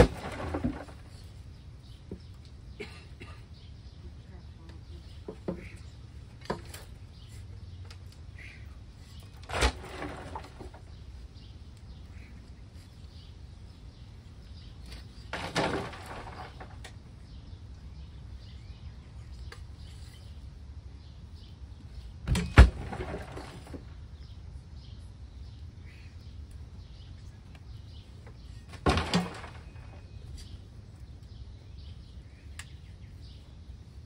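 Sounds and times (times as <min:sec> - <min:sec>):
soil crashing into a grave: 0:00.0 - 0:01.2, 0:09.4 - 0:10.9, 0:15.2 - 0:16.8, 0:22.3 - 0:23.9, 0:28.7 - 0:30.0.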